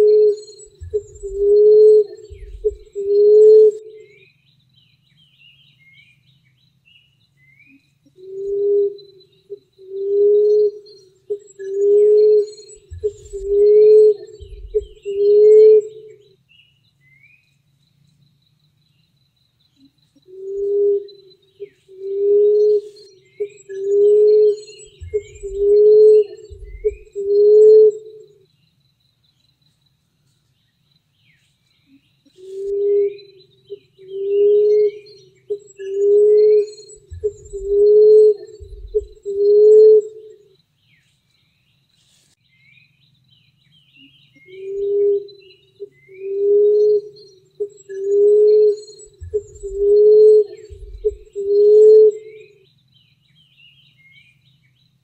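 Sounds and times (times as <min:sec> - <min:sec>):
dove cooing: 0:00.0 - 0:04.2, 0:08.2 - 0:16.2, 0:20.3 - 0:28.3, 0:32.3 - 0:40.4, 0:44.5 - 0:52.5
small birds chirping: 0:00.0 - 0:55.0.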